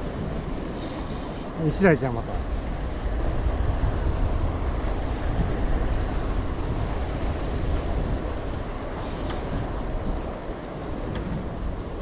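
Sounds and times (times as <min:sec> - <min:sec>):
choppy sea waves: 0:00.0 - 0:12.0
wind rumbling on microphone: 0:00.0 - 0:12.0.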